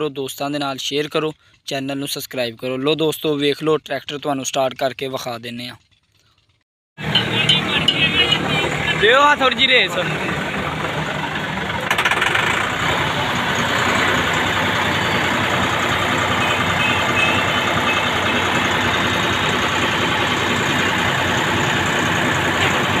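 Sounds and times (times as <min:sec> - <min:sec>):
tractor diesel engine revving: 0:07.0 - 0:23.0.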